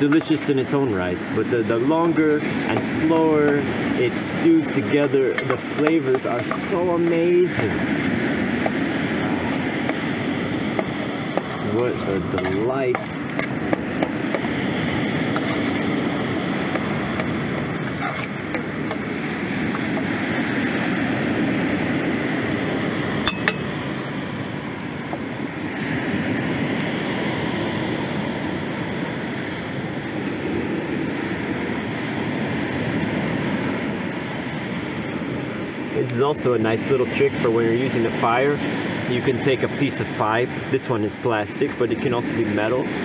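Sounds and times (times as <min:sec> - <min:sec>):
steady rushing noise: 0:00.0 - 0:43.0
metal spoon clinking on pot: 0:23.3 - 0:23.6.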